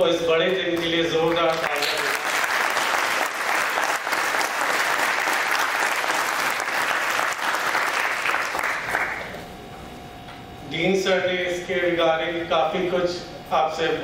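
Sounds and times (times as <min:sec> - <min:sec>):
audience applause: 0:01.3 - 0:09.4.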